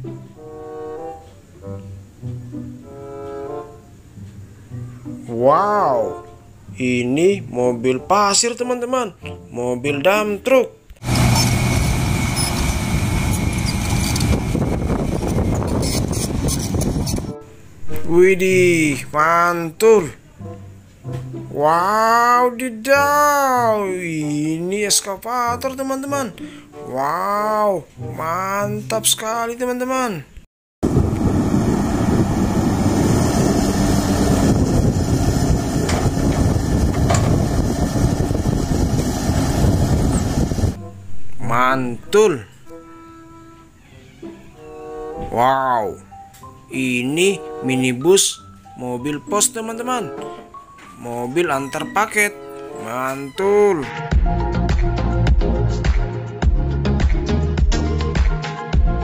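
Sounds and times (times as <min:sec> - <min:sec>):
soil being dumped: 0:11.0 - 0:14.6
diesel truck engine running: 0:11.0 - 0:17.2, 0:30.8 - 0:40.8
hydraulic hoist raising tipper bed: 0:11.0 - 0:18.1, 0:31.0 - 0:40.8.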